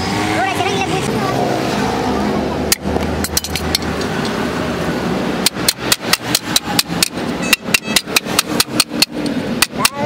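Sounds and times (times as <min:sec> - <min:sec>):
hammer tapping sheet metal: 0:05.4 - 0:10.0.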